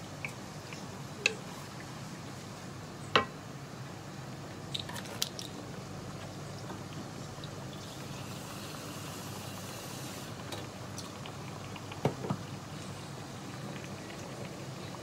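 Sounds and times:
tofu bubbling in a pan: 4.4s - 15.0s.

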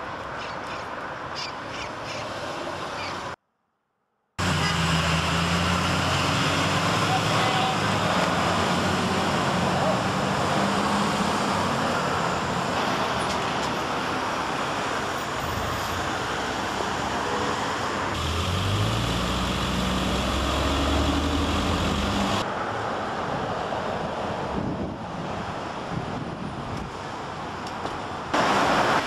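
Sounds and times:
cars passing on a road: 0.0s - 3.4s, 4.4s - 29.0s
vehicle engine low hum: 18.2s - 22.5s.

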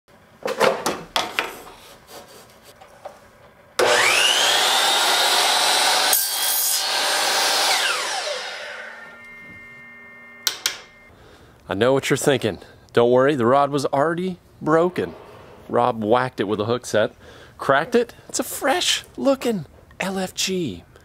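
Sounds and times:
miter saw whine: 3.8s - 11.1s
saw blade cutting: 3.8s - 11.1s.

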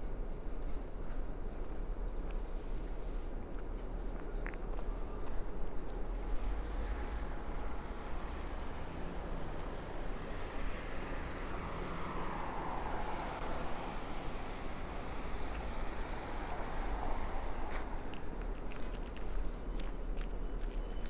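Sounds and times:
low rumble of traffic: 0.0s - 21.0s
footsteps on pavement: 17.6s - 21.0s.

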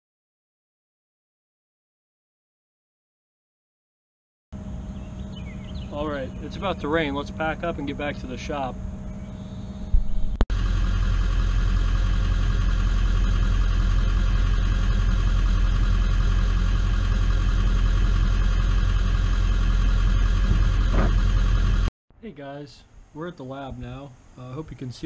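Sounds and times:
car engine idling: 4.6s - 21.9s.

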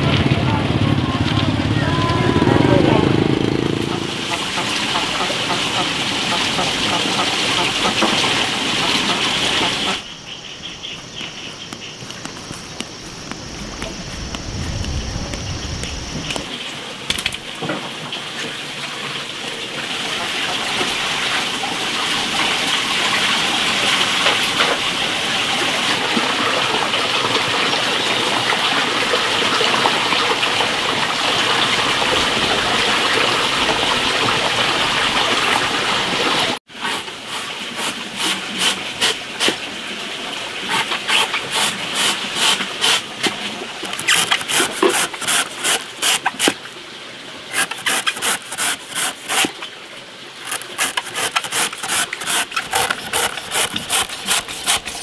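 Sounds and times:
water rushing: 0.0s - 10.3s, 11.0s - 36.6s, 37.5s - 55.0s
scraping and chopping strokes: 40.7s - 46.6s, 47.5s - 49.6s, 50.4s - 55.0s.

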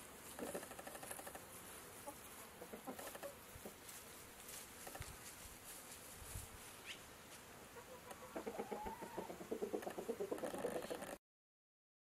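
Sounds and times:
chickens clucking: 0.2s - 1.4s, 2.0s - 3.9s, 7.7s - 11.2s.

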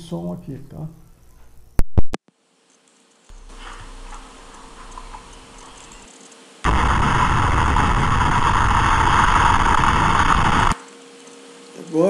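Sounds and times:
rushing wind noise: 6.7s - 10.8s.

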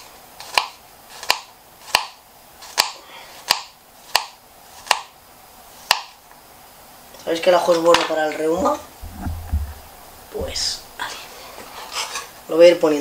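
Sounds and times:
knife slicing garlic: 0.4s - 5.1s
knife knocking on cutting board: 8.6s - 10.7s.

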